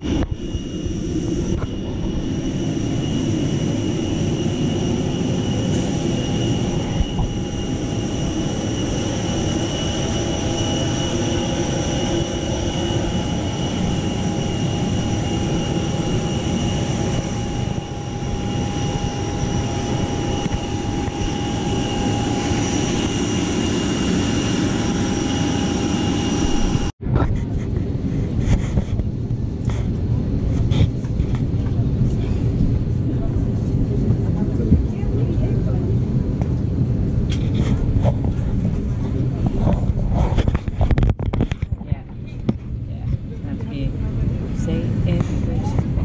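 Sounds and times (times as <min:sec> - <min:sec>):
jet auxiliary power unit whine: 0:00.0 - 0:27.0.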